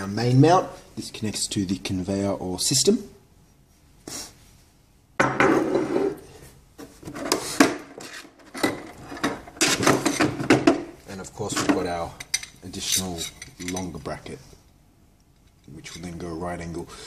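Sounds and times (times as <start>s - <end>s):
metal parts clinking: 11.6s - 14.1s.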